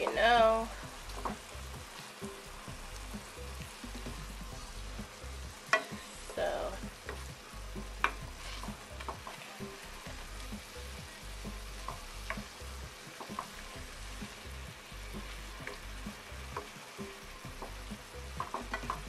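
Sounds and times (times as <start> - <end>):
vegetables and eggs sizzling in pan: 0.0 - 19.0
wooden spatula scraping pan: 8.0 - 10.0
spatula clicking against pan: 18.4 - 19.0.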